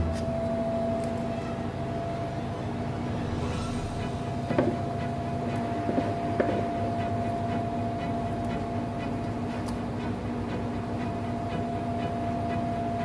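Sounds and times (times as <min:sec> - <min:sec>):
machine hum with high tone: 0:00.0 - 0:09.3
low rumble: 0:02.0 - 0:06.0.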